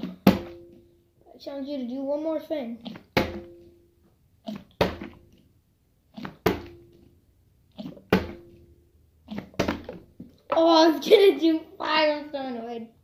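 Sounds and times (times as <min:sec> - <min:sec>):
plastic bottle landing on glass: 0:08.1 - 0:08.6, 0:09.6 - 0:10.0.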